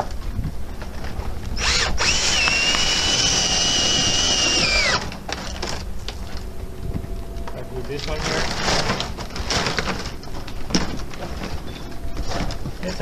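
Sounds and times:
cordless drill driving screw: 1.6 - 5.2.

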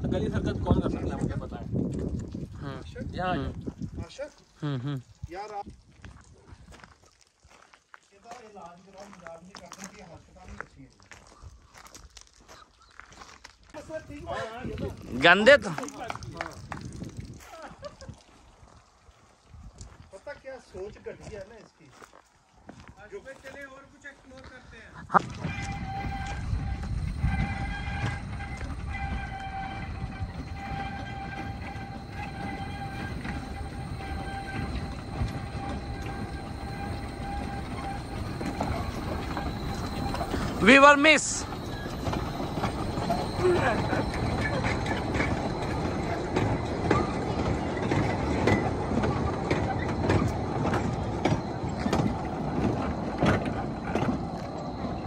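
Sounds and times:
train rumbling: 25.0 - 55.0
high ringing tone: 25.4 - 55.0.

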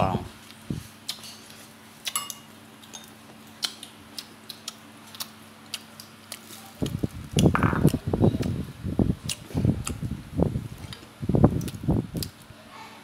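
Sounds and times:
steady low hum: 0.0 - 13.0
chopsticks and dishes clicking: 2.1 - 3.9.

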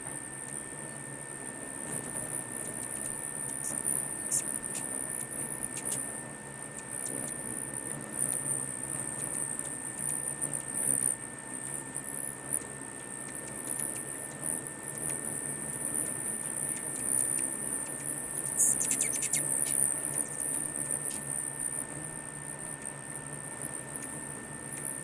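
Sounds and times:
high-pitched whine: 0.0 - 25.0
hummingbirds buzzing: 0.0 - 25.0
sharp high bird chips: 18.6 - 19.8.

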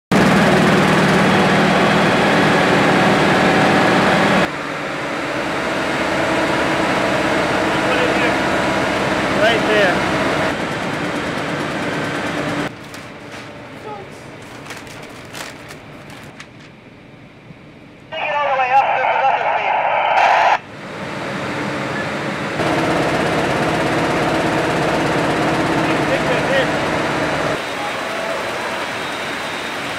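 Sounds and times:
printing press and conveyor running: 5.6 - 16.7, 22.6 - 29.9
printing press machine din: 22.6 - 29.9.

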